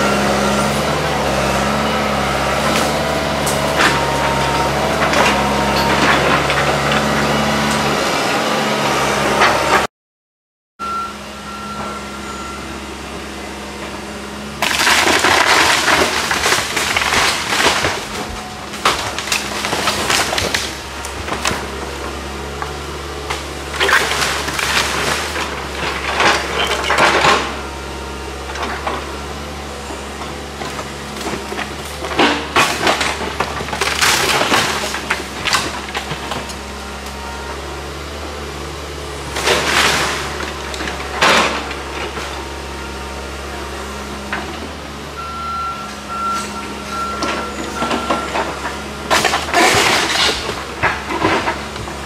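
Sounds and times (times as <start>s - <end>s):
excavator engine running: 0.0s - 9.9s, 10.8s - 52.0s
timber cracking and splintering: 14.6s - 27.6s, 30.4s - 36.6s, 39.3s - 42.3s, 47.8s - 52.0s.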